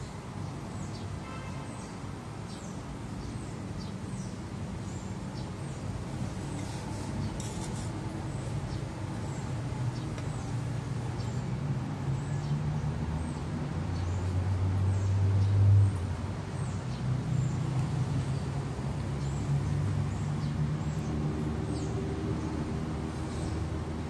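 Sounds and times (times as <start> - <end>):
small birds chirping: 0.0 - 23.8.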